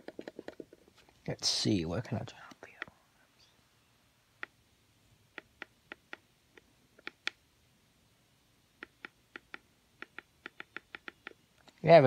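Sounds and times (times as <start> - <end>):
radio buttons clicking: 5.3 - 7.4, 8.8 - 11.4.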